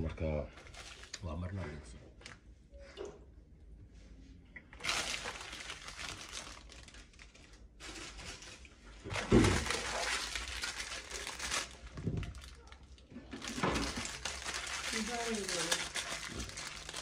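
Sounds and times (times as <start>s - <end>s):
plastic packet crinkling: 0.6s - 1.2s, 4.8s - 17.0s.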